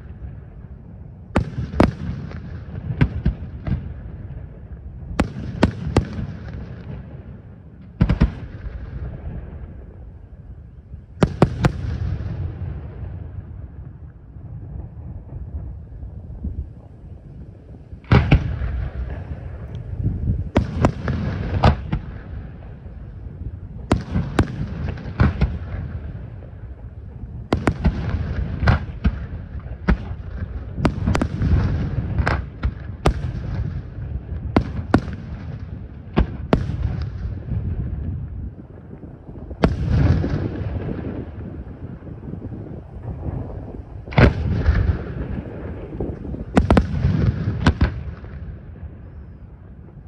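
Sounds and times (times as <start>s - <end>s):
low rolling rumble: 36.8s - 50.0s.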